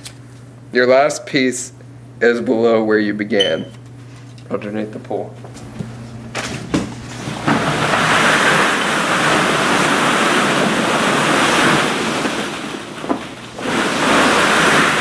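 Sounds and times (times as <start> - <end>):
inflatable pool vinyl rustling: 5.6 - 15.0
plastic balls clattering: 7.5 - 15.0.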